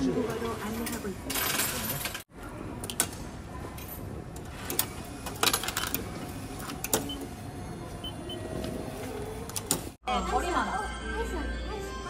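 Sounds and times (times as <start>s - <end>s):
steady background noise: 0.0s - 10.6s.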